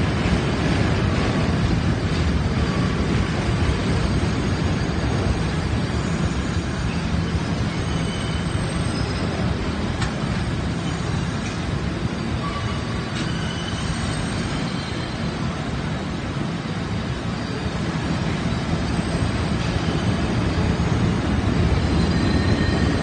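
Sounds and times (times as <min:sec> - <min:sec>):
subway train wheels rumbling on rail: 0:00.0 - 0:23.0
faint wheel squeals: 0:04.0 - 0:16.0, 0:16.9 - 0:23.0.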